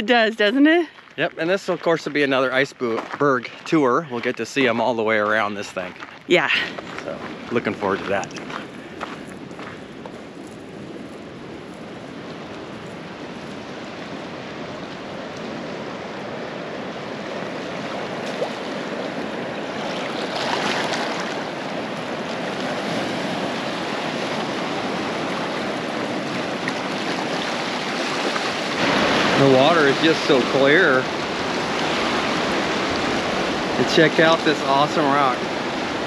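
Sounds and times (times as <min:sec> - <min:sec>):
waves washing over rocks: 0:11.2 - 0:36.0.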